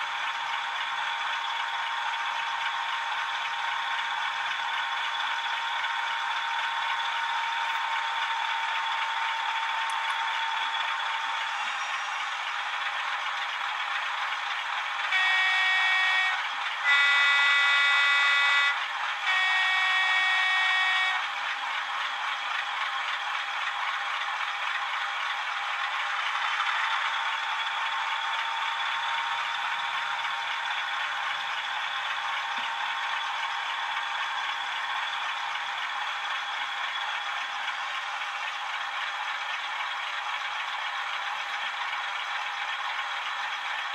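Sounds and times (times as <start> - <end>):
model locomotive engine sound: 0.0 - 43.9
two-tone locomotive horn: 15.0 - 21.6.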